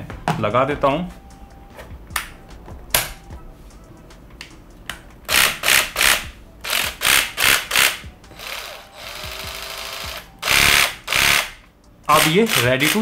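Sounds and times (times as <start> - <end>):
cordless jigsaw running in bursts: 5.3 - 13.0.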